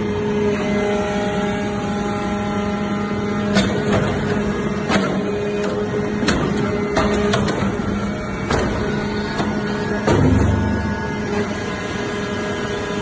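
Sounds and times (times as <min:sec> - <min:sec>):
hydraulic pump humming: 0:00.0 - 0:13.0
high whine: 0:07.6 - 0:13.0.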